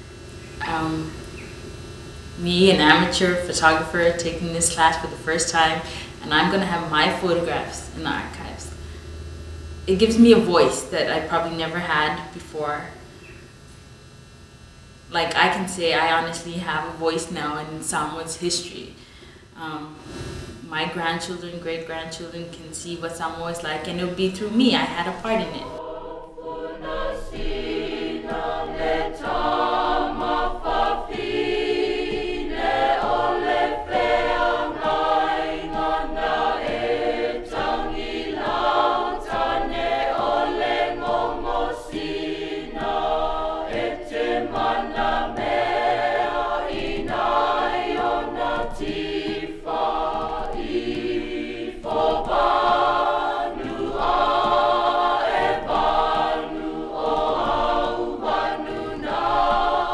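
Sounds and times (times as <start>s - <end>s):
choir singing: 2.2s - 8.8s, 9.8s - 12.9s, 23.8s - 59.9s.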